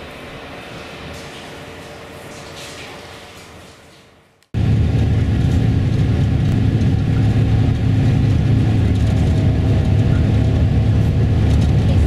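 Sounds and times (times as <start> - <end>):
coach engine and tyres rumbling: 4.6 - 12.0.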